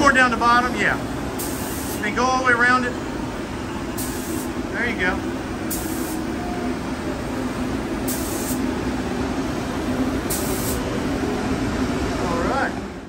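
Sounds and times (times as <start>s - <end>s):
constant hum: 0.0s - 13.0s
spray gun hissing: 1.4s - 2.0s, 4.0s - 4.6s, 5.7s - 6.2s, 8.0s - 8.7s, 10.2s - 10.9s.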